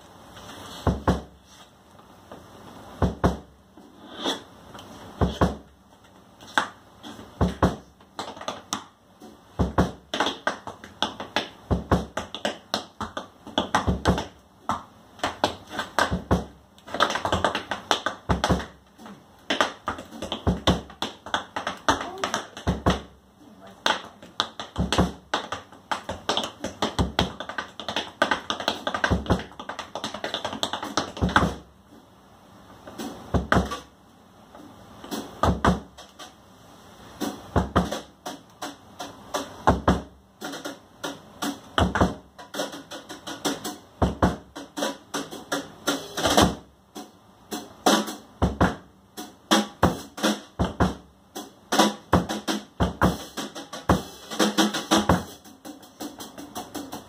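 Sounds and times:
drums: 0.0s - 31.8s, 32.6s - 57.0s
tap shoes clicking on stage: 7.4s - 8.9s, 9.6s - 23.1s, 23.8s - 31.6s.

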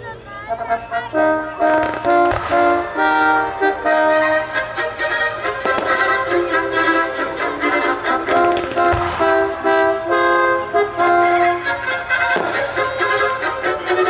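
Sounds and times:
orchestral music with violins: 0.6s - 14.0s
fireworks: 1.6s - 3.2s, 3.8s - 9.9s, 11.0s - 14.0s
deep firework boom: 8.3s - 9.5s.

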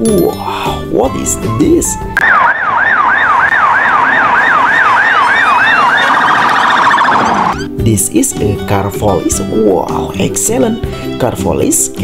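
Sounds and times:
police siren wailing: 2.1s - 7.7s.

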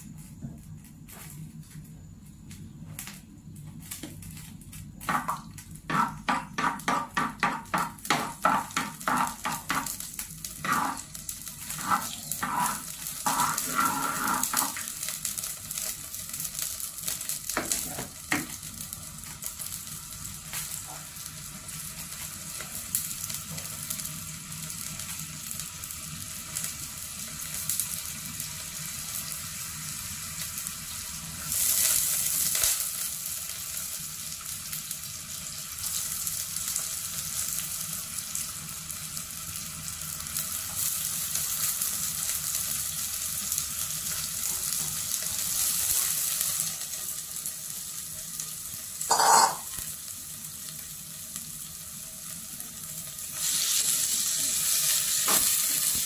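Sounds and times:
hot oil sizzling: 0.0s - 56.0s
wooden spoon scraping a pot: 10.6s - 14.8s, 49.1s - 49.7s.

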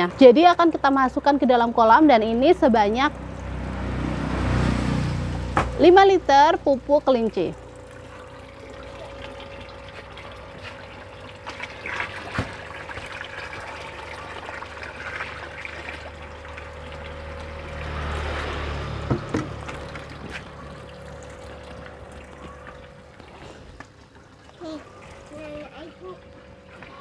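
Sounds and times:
liquid pouring into pond water: 6.7s - 27.0s.

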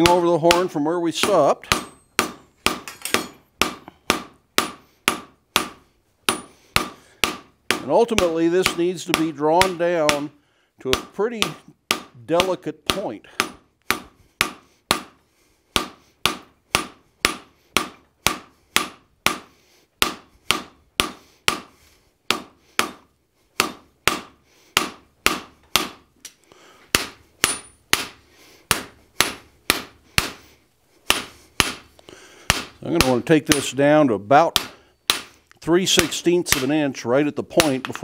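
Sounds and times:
hammer striking steel on anvil: 0.0s - 10.3s, 26.9s - 30.4s, 32.5s - 33.8s, 34.5s - 36.7s.

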